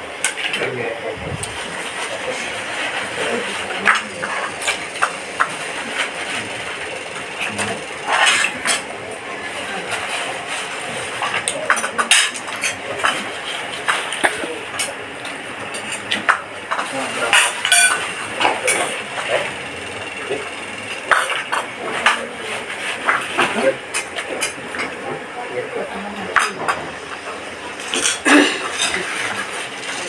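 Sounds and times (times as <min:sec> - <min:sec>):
background chatter: 0:00.0 - 0:30.0
spoons and plates clinking: 0:16.7 - 0:20.2.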